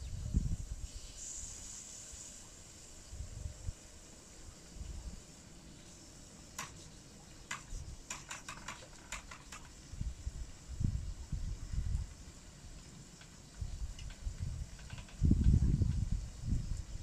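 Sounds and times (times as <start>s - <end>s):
faint hiss: 0.0s - 17.0s
sharp clicks: 6.6s - 6.8s, 7.5s - 9.7s.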